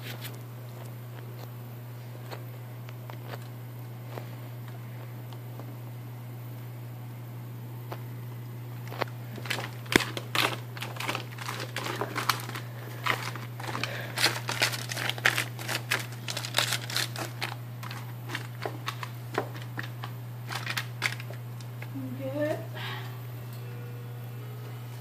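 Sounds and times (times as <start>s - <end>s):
steady low hum: 0.0s - 25.0s
foil pan crinkling: 9.2s - 21.9s.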